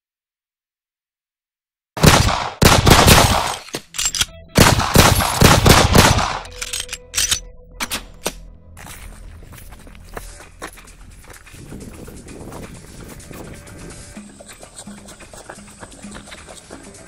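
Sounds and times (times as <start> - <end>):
rapid gunfire: 2.0 - 3.6, 4.6 - 6.4.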